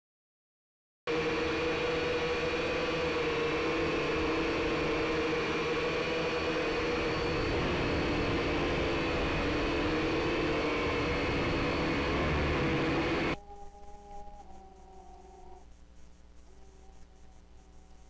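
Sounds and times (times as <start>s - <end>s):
toy drone motors whining: 1.4s - 15.8s.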